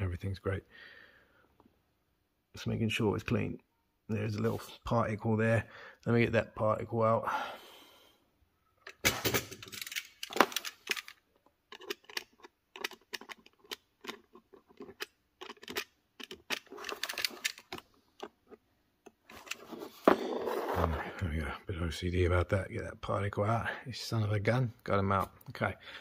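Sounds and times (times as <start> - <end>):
small tool clicking and scraping: 9.8 - 19.7.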